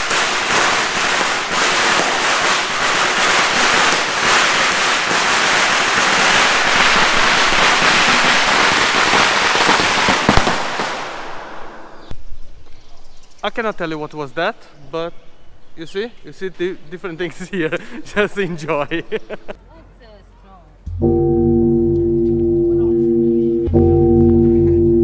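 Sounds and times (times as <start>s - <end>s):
firecrackers crackling: 0.0s - 12.1s.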